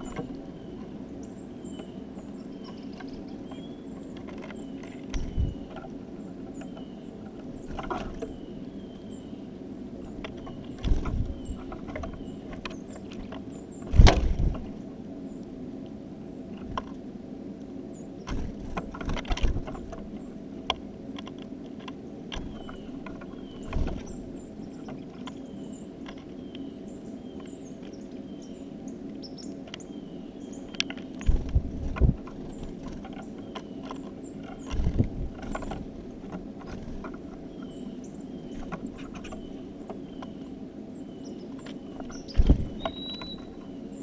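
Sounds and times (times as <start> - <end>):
birds pecking at feeder: 0.0 - 44.0
faint high bird chirps: 36.6 - 44.0.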